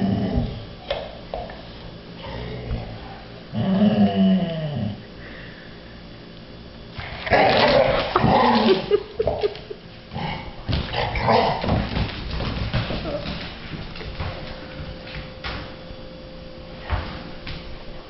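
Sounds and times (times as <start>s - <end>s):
dogs growling in play: 0.0s - 0.7s, 2.2s - 5.1s, 7.0s - 12.0s.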